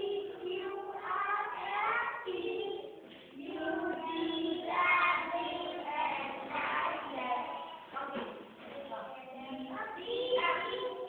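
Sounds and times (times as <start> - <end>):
children singing in unison: 0.0 - 7.9.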